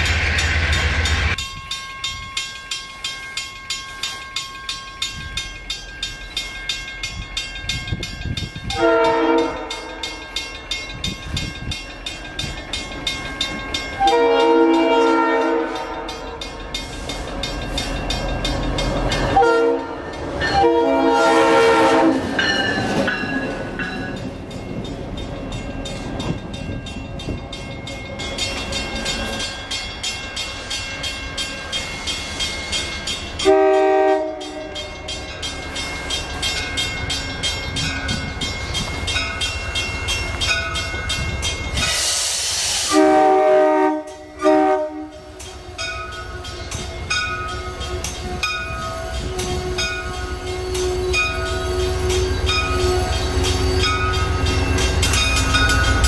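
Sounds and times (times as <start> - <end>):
train rumble and wheel clatter: 0.0 - 56.0
train horn blasts: 8.7 - 10.2, 14.0 - 16.4, 19.4 - 22.4, 33.4 - 35.0, 42.9 - 45.8, 47.6 - 54.0.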